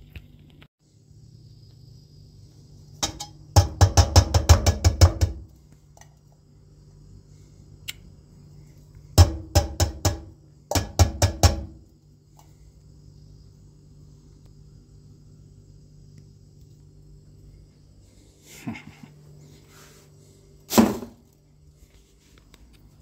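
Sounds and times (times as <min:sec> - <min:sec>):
utensil knocking against cookware: 0:03.0 - 0:05.5, 0:09.2 - 0:11.8.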